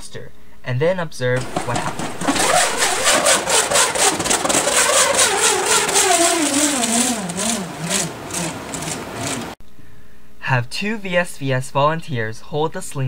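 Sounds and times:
nut rattling inside balloon: 1.4 - 9.6.

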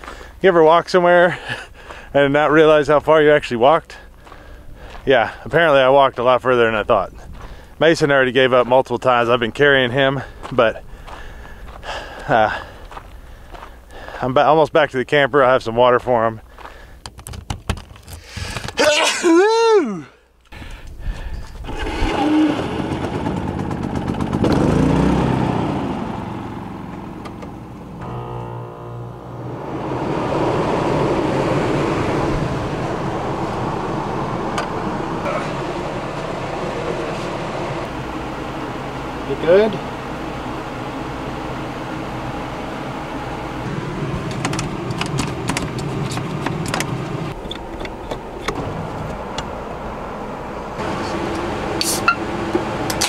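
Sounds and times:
window latch clicks and rattles: 17.0 - 18.7
small generator engine running: 21.7 - 47.4, 50.2 - 53.0.

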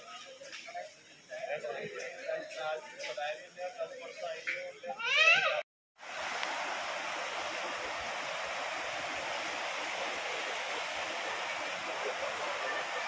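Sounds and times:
river rushing: 6.0 - 13.0.

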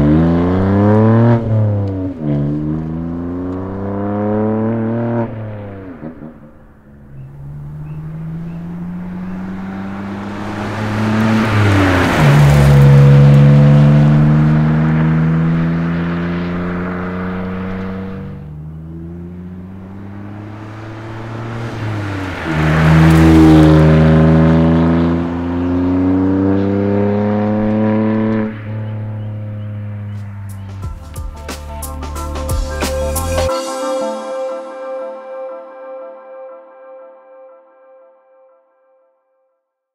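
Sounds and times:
car engine accelerating hard: 0.0 - 31.2.

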